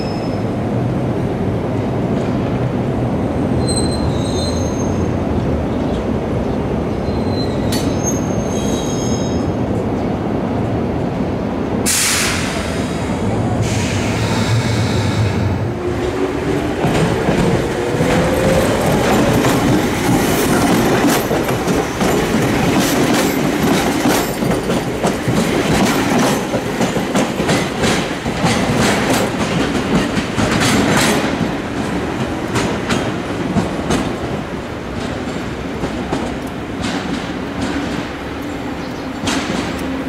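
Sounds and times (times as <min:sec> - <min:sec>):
electric train running hum: 0:13.0 - 0:40.0.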